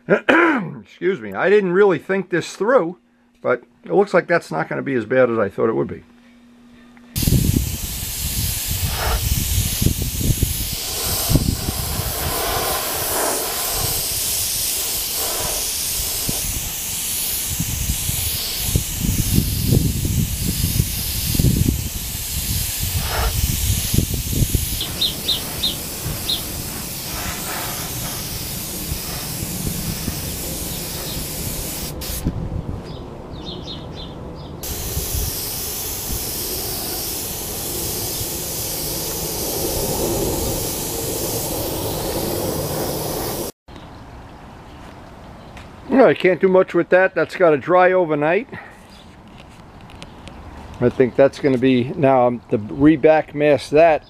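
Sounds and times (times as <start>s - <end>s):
low rumbling gusts: 7.2s - 16.8s, 17.5s - 43.6s
airbrush spraying paint: 7.2s - 32.3s, 34.6s - 43.6s.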